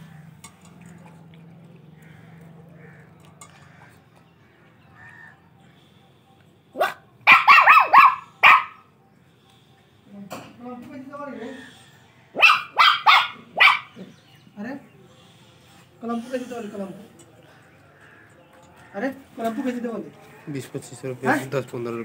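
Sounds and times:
puppy barking: 6.8s - 8.8s, 12.4s - 14.1s.

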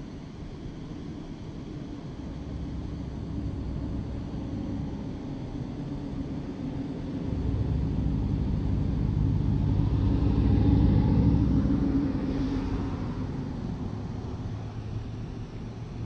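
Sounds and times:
vehicle driving past: 7.1s - 15.8s.

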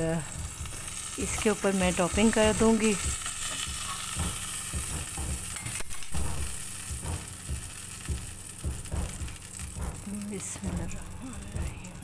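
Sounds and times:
bread sizzling in a frying pan: 0.0s - 12.0s
soft low knocks: 6.1s - 11.8s.

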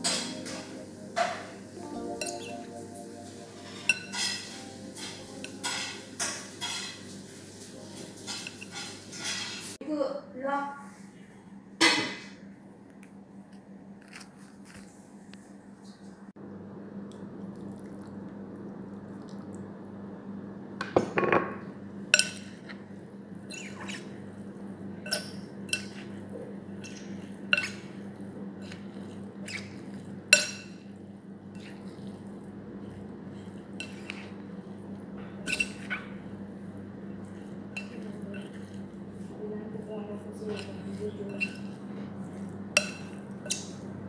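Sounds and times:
wet leaves stirring: 0.0s - 9.8s, 23.5s - 44.0s
spoon clinking against bowl: 3.6s - 7.0s, 30.4s - 30.8s, 35.4s - 35.9s, 37.7s - 38.5s, 40.5s - 41.8s, 42.4s - 43.8s.

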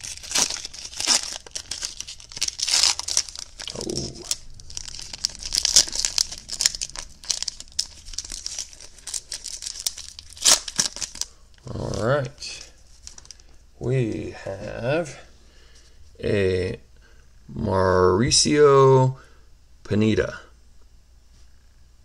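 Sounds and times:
foil wrapper tearing and crinkling: 0.0s - 12.1s, 12.9s - 13.4s.

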